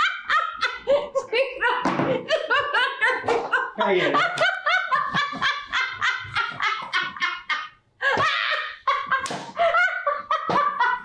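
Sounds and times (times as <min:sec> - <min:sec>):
woman laughing: 0:00.0 - 0:11.0
man laughing: 0:02.6 - 0:11.0.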